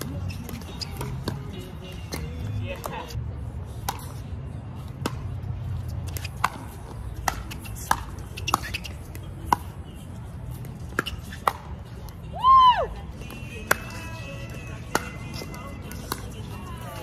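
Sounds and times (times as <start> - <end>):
ball bouncing on hard court: 6.1 - 9.7.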